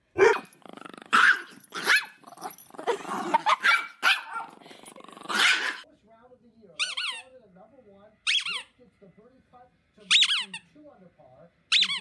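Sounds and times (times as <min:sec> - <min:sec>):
dog growling: 0:00.1 - 0:05.8
small dogs barking: 0:00.2 - 0:05.8.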